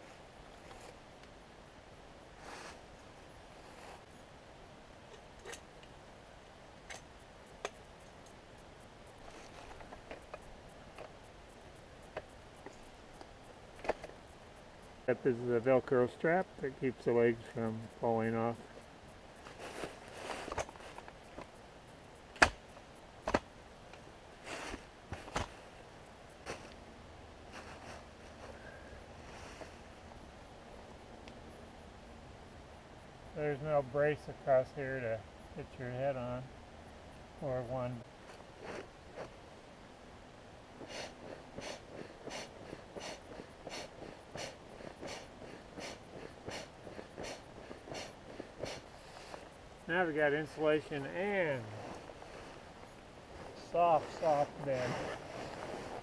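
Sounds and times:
cot frame clicks and knocks: 23.2 - 23.5
foot pump air whooshes: 40.8 - 49.4
fabric rustling: 51.7 - 56.0.

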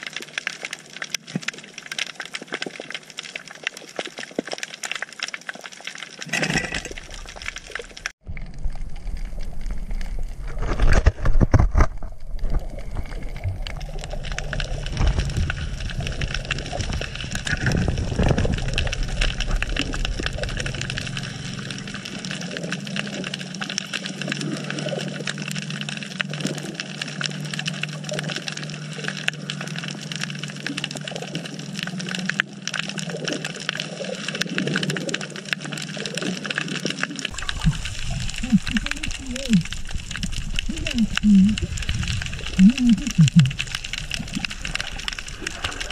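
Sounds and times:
fine crackle: 0.0 - 45.9
water rushing underwater: 0.0 - 45.9
low steady hum: 8.2 - 23.6, 37.3 - 45.9.

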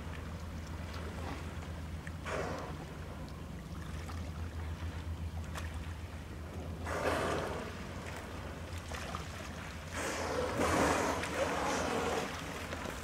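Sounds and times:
steady low hum: 0.0 - 13.0
whale exhaling: 2.2 - 3.1, 6.7 - 8.6, 9.8 - 12.9.

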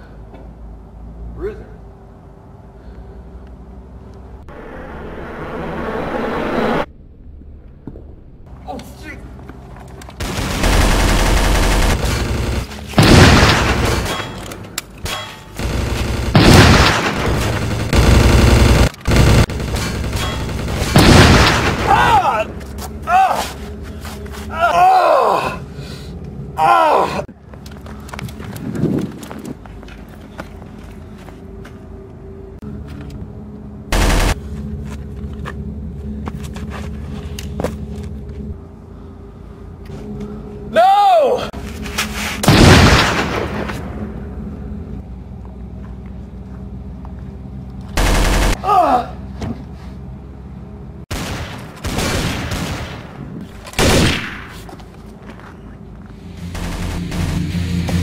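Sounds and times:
rising and falling whine: 3.4 - 8.6, 56.0 - 58.0
gunfire and explosion blasts: 10.2 - 22.2, 42.4 - 44.2, 51.1 - 54.7, 56.5 - 58.0
sharp gunshot cracks: 53.8 - 54.6.

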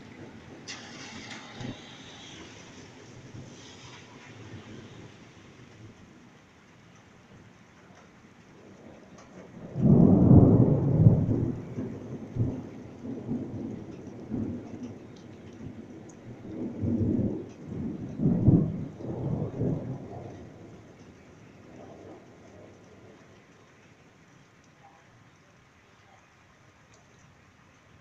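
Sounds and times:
thunder rumbling: 0.0 - 6.0, 8.5 - 23.6
rain hiss: 0.0 - 28.0.

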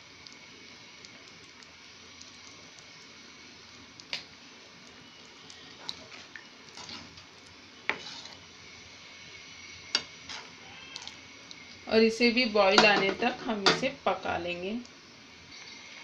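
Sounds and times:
simmering liquid hiss: 0.0 - 16.0
spoon stirring bubbling mixture: 0.2 - 11.8.

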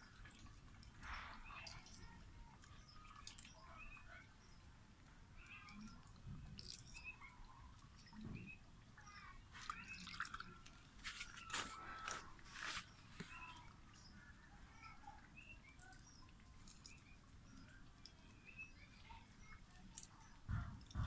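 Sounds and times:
faint bird chirps: 5.3 - 21.0.

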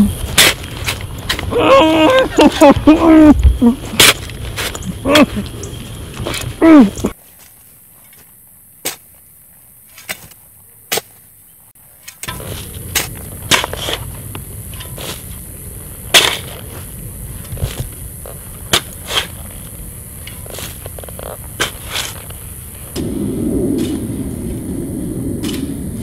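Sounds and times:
steady rustle: 0.0 - 1.6, 11.8 - 26.0
shovel digging earth: 0.0 - 23.0.

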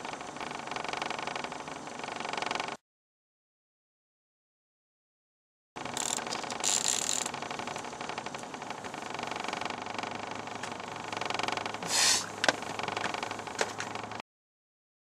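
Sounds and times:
boat motor humming: 0.0 - 2.8, 5.8 - 14.2.

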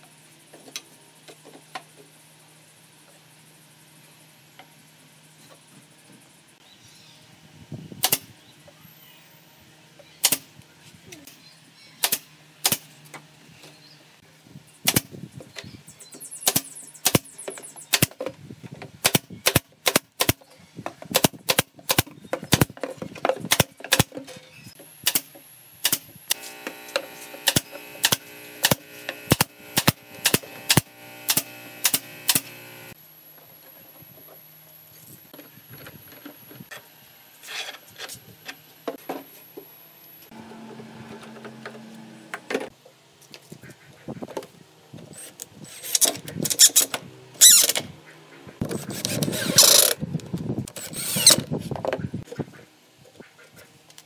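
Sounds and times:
nail gun firing: 8.0 - 8.3, 10.2 - 10.5, 12.0 - 12.9, 14.8 - 15.1, 16.4 - 17.3, 17.9 - 18.2, 19.0 - 20.4, 21.1 - 22.8, 23.5 - 24.1, 25.0 - 32.6, 49.0 - 50.0
steady hum: 24.9 - 33.0, 40.0 - 42.7.

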